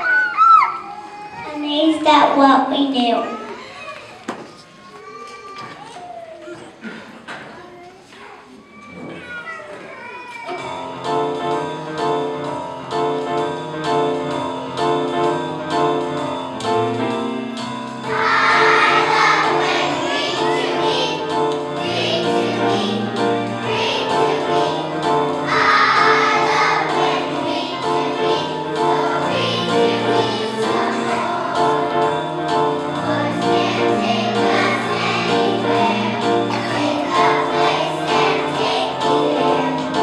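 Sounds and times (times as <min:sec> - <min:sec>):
instrumental accompaniment: 0:10.5 - 0:40.0
children's choir singing: 0:17.9 - 0:40.0.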